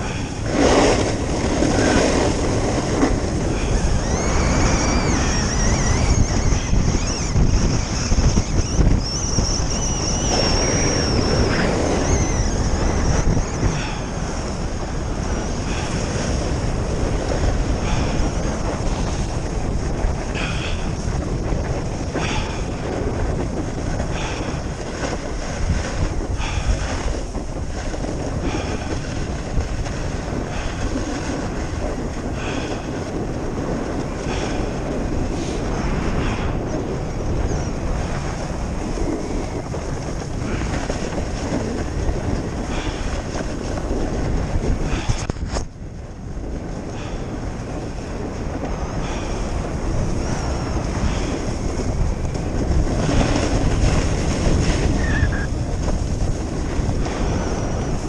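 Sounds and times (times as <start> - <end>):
wind rushing over microphone: 0.0 - 58.0
ski edges scraping snow: 0.1 - 14.0, 15.1 - 45.6, 47.0 - 58.0
wavering high whistle: 3.7 - 13.7, 55.0 - 55.5.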